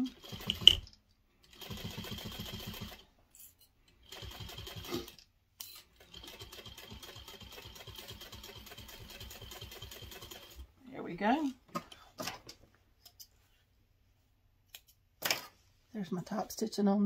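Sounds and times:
sewing machine stitching: 0.0 - 3.1, 4.0 - 5.2, 5.8 - 10.6.

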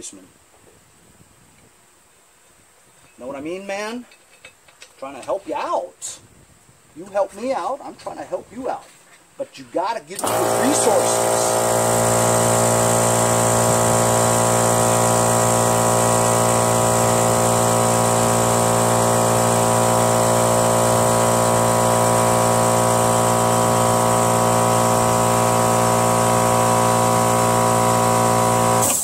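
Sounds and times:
air compressor humming: 10.2 - 29.0.

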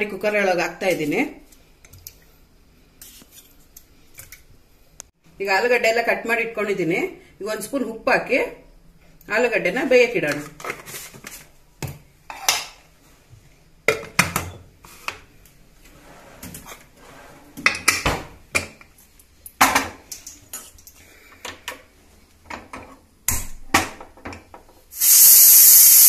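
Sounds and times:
steam hissing: 24.9 - 26.0.

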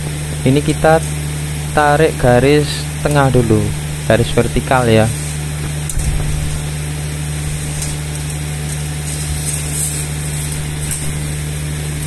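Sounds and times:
low hum of machinery: 0.0 - 12.0
scribe scratching on steel plate: 8.7 - 11.2.

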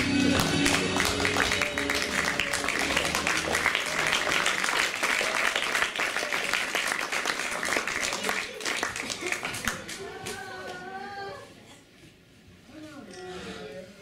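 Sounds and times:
audience applauding: 0.0 - 10.4.

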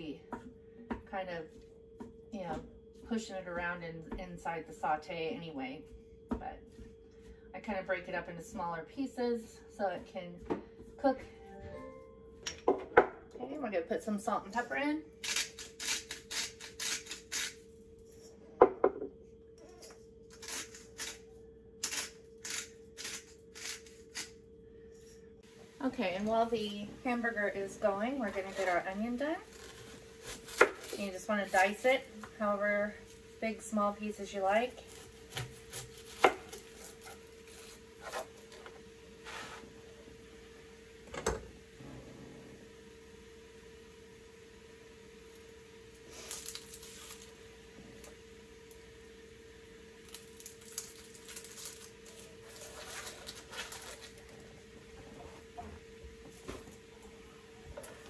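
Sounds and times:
faint steady hum: 0.0 - 58.0
pepper grinder rasping: 15.2 - 17.6, 19.7 - 21.2, 21.8 - 24.4.

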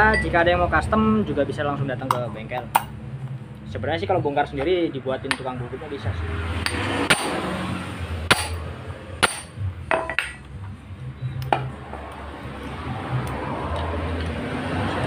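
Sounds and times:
hammer striking impact driver: 6.6 - 7.4, 8.3 - 8.6, 9.2 - 9.6.

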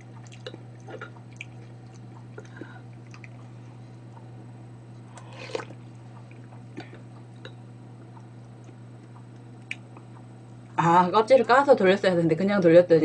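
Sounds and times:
wet slurp: 0.0 - 3.4, 5.1 - 7.5
low steady hum: 0.0 - 13.0.

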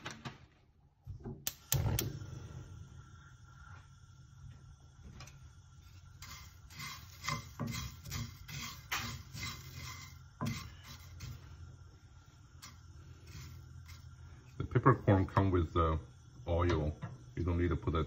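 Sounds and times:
wooden spatula scraping peppercorns: 5.8 - 11.8, 12.6 - 15.2.

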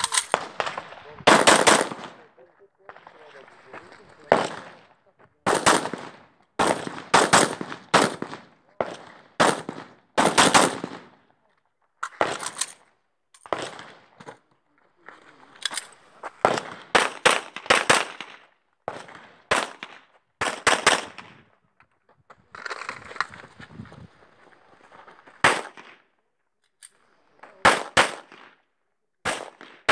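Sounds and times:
rifle shots: 0.0 - 2.3, 4.3 - 11.2, 12.1 - 12.7, 13.4 - 14.1, 16.4 - 21.4, 25.4 - 25.9, 27.5 - 28.6, 29.2 - 29.9.

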